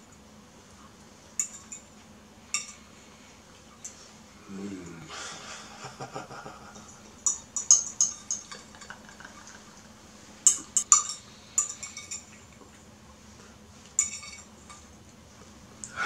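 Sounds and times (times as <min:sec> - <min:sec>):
fork clinking against bowl: 0:01.4 - 0:01.9, 0:02.5 - 0:02.8, 0:06.8 - 0:09.6, 0:10.5 - 0:12.5, 0:14.0 - 0:14.9.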